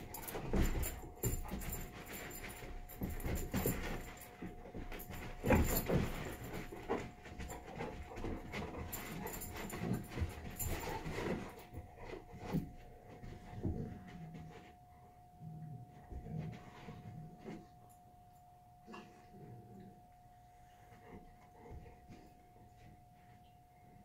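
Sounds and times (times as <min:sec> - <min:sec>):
dogs panting: 0:00.0 - 0:14.4
dogs scuffling: 0:00.0 - 0:14.8.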